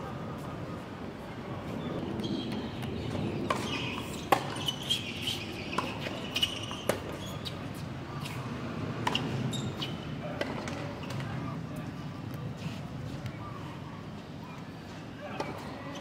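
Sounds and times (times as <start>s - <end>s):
tennis ball bouncing: 2.8s - 7.6s.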